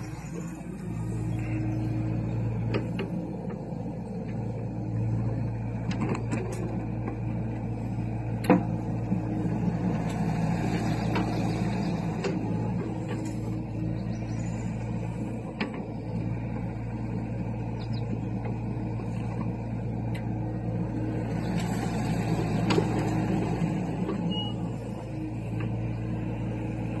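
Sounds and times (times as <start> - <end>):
excavator diesel engine running: 0.0 - 27.0.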